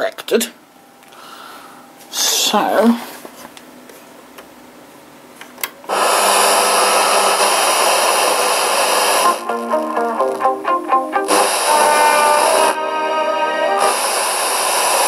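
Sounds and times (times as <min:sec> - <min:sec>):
radio static: 0:06.1 - 0:10.6, 0:11.2 - 0:15.0
radio music: 0:07.4 - 0:15.0.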